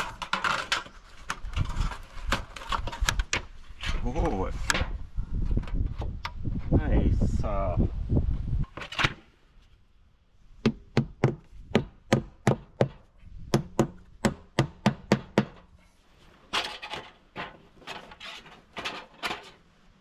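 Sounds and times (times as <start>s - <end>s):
rough irregular knocks: 10.6s - 15.7s.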